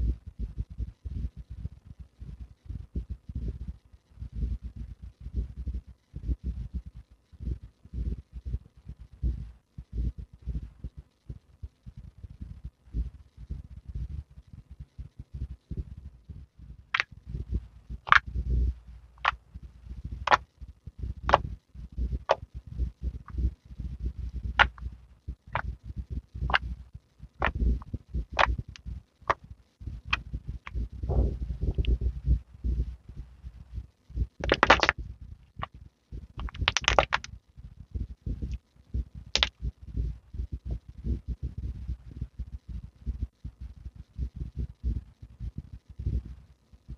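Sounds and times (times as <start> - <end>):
sharp crackling pops: 16.9 - 20.6, 21.2 - 22.6, 23.2 - 32.9, 33.5 - 37.4, 39.3 - 41.2
air pockets popping in slime: 34.4 - 35.0, 36.4 - 37.3
slime squelching: 34.4 - 35.0, 36.4 - 37.3.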